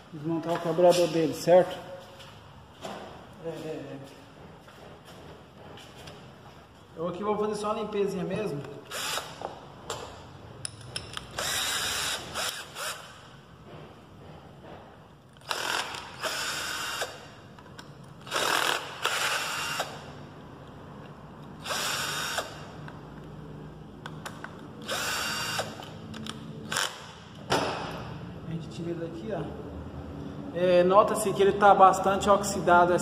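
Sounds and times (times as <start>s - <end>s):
cordless drill running: 8.8s - 9.5s, 11.4s - 13.2s, 15.4s - 17.3s, 18.2s - 20.1s, 21.6s - 22.7s, 24.8s - 25.8s.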